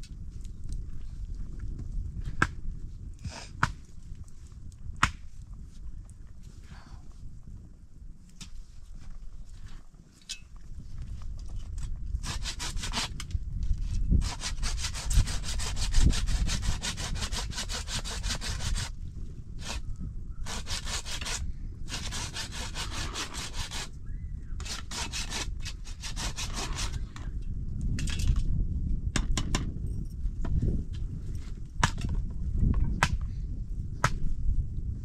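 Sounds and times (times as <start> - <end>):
hand saw cutting wood: 12.2 - 13.3, 14.2 - 18.9, 19.6 - 19.8, 20.4 - 23.9, 24.6 - 27.1.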